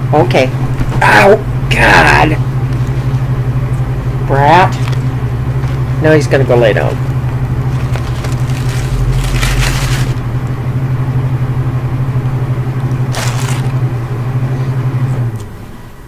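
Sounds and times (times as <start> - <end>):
loud low hum: 0.0 - 16.0
paper wrapper crinkling: 7.7 - 10.2, 13.1 - 13.8.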